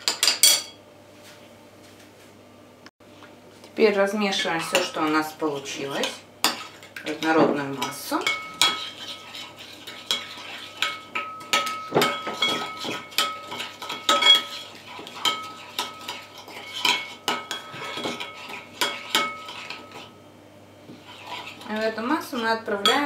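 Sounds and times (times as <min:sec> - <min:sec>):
spoon clinking in ceramic bowl: 0:10.1 - 0:14.6.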